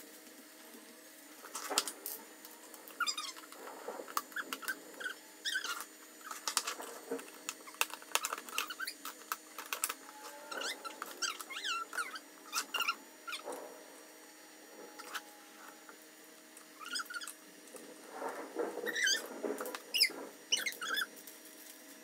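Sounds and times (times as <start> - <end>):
high plastic squeaks: 2.8 - 13.7, 14.8 - 15.4, 16.7 - 21.1.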